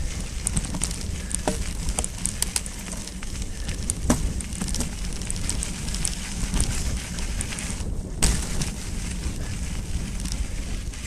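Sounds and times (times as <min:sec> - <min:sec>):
bike clicks and rattles: 0:00.0 - 0:11.0
bike tyres crunching over dirt: 0:00.0 - 0:11.0
low rumble of riding and wind: 0:00.0 - 0:11.0
sharp knocks over rough ground: 0:00.5 - 0:06.8, 0:08.1 - 0:08.8.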